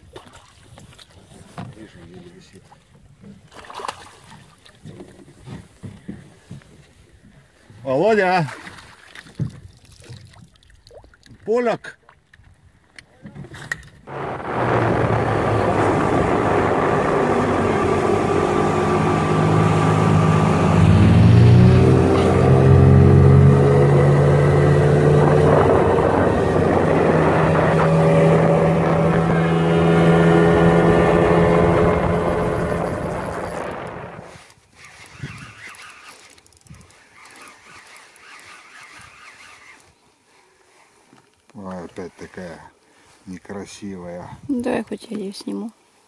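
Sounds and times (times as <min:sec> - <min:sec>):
wind: 0:00.0 - 0:46.0
rushing water: 0:14.1 - 0:34.3
outboard motor drone: 0:14.1 - 0:39.9.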